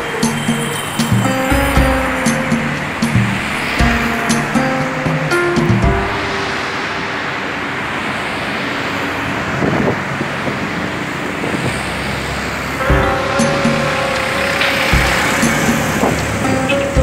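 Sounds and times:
music track: 0.0 - 8.4, 12.8 - 17.0
car passing by: 0.0 - 17.0
road traffic noise: 0.0 - 17.0.

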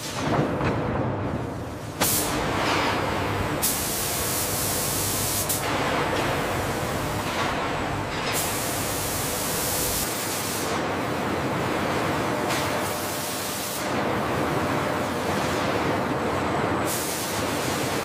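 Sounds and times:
spray nozzles hissing: 2.0 - 10.7.

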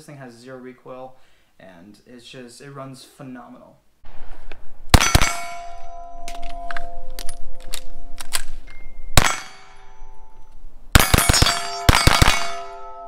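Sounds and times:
metallic clangs ringing: 5.0 - 13.0.

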